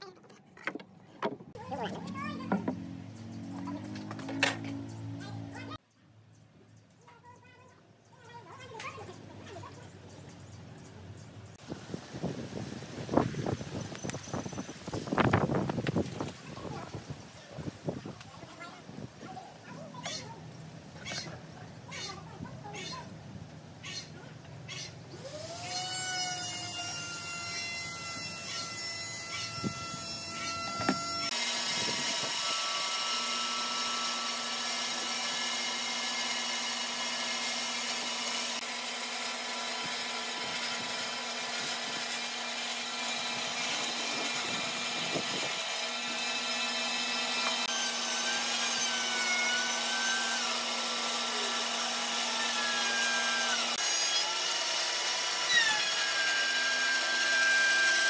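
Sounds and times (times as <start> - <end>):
band saw cutting wood: 25.1 - 58.0.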